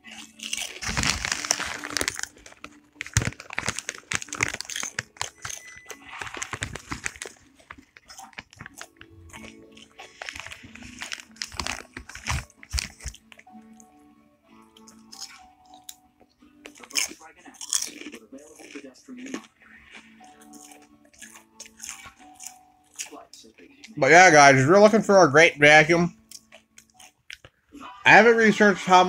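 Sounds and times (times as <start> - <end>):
crunchy snack chewing: 0.0 - 13.5, 14.8 - 16.0, 16.6 - 23.7, 26.3 - 27.6.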